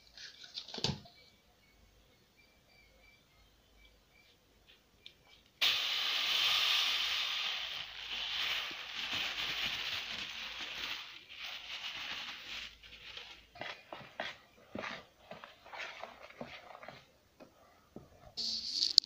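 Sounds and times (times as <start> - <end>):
sugar pouring into metal pot: 5.6 - 13.5.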